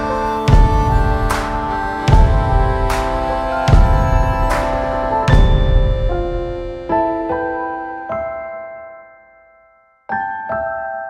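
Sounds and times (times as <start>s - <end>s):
deep drum hit: 0.0s - 7.0s
cymbal-like hit: 0.0s - 7.1s
sustained chords over slow beat: 0.0s - 7.9s.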